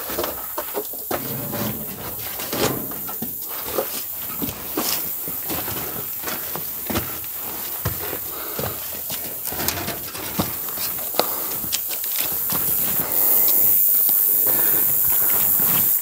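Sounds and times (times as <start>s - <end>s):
footsteps on loose boards: 0.0s - 12.8s
steady high hiss: 0.3s - 6.2s.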